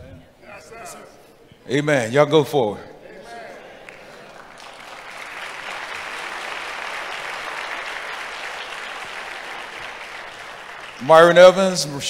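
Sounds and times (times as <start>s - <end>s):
congregation applauding: 3.4s - 12.0s.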